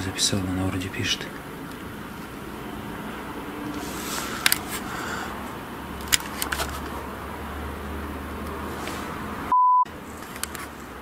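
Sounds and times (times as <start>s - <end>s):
camera handling clicks and knocks: 4.4s - 4.7s, 6.0s - 7.0s.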